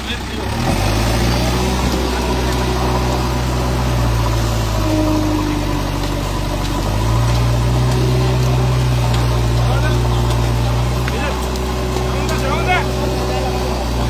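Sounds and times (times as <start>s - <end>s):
diesel engine running: 0.0s - 14.0s.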